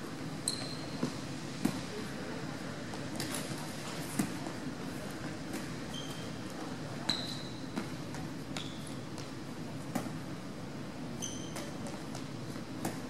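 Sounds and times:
sneakers squeaking on wood floor: 0.4 - 1.1, 5.8 - 6.4, 7.1 - 7.8, 8.5 - 9.2, 11.2 - 11.8.

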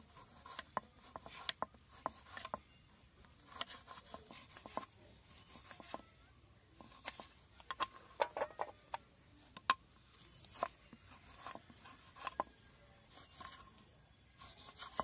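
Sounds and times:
knife slicing tomato: 0.0 - 2.6, 3.4 - 6.0, 6.8 - 8.2, 10.1 - 13.7, 14.3 - 15.0.

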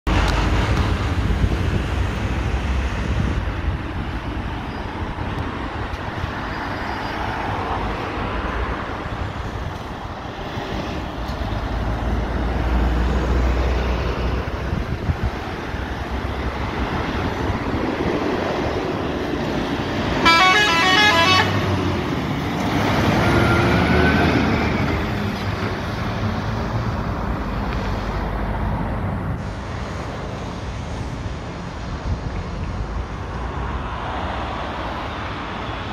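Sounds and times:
truck horn pulsing blast: 20.2 - 21.7.

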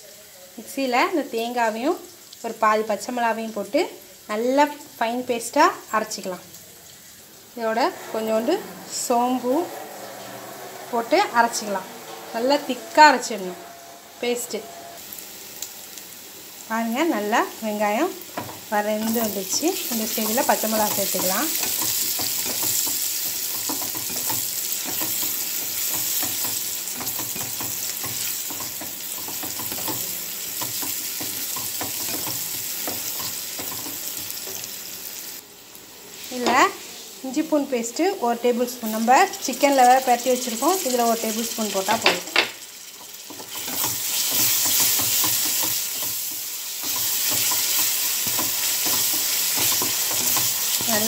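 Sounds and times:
onions sizzling in hot oil: 0.0 - 51.0
wooden spatula scraping a pan: 7.7 - 14.8, 43.1 - 51.0
wooden spatula scraping pan: 7.8 - 15.0.

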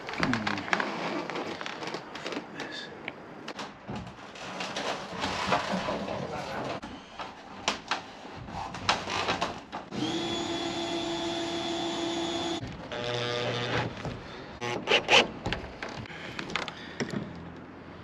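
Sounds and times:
power drill driving screws: 9.9 - 13.9.

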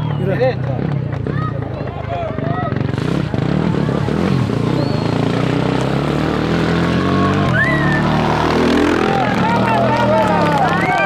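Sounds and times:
motorcycle engine revving: 0.0 - 11.0
spectators shouting: 3.9 - 11.0.

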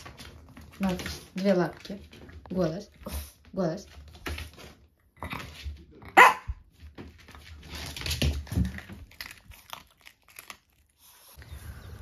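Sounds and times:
small dog barking: 6.1 - 6.6.

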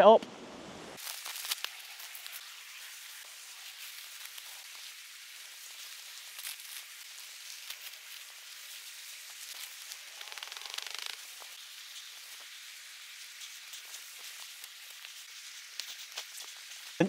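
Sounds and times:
tent fabric rustling: 1.0 - 17.0
tent poles clicking: 9.9 - 11.4.

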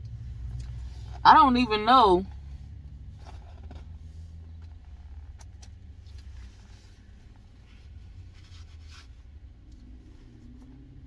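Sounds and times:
faint clicks and rustles: 2.8 - 11.0.

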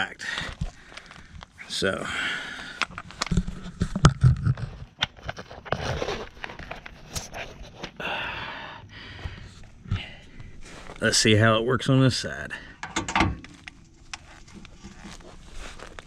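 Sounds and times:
scraping and rustling on canvas: 3.0 - 8.0, 13.9 - 16.0
tool handling clicks and knocks: 12.8 - 13.8.

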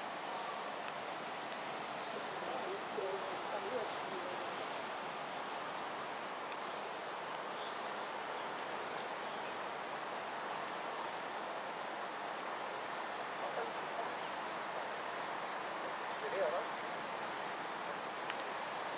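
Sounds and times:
insect chorus shrilling: 1.8 - 18.9.

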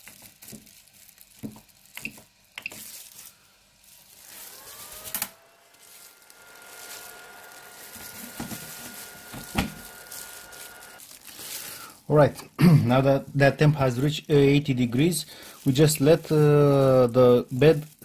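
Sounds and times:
faint printer whine: 2.1 - 11.0.

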